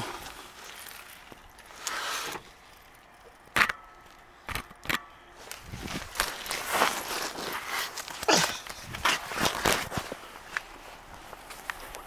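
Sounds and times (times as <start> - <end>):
camera handling rustle: 3.6 - 12.0.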